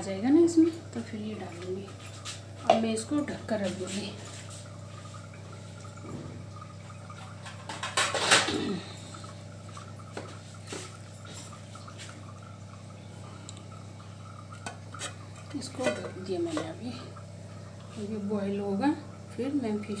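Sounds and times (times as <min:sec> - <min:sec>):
liquid hissing in a pan: 0:03.5 - 0:06.4, 0:07.4 - 0:12.3, 0:13.0 - 0:17.2.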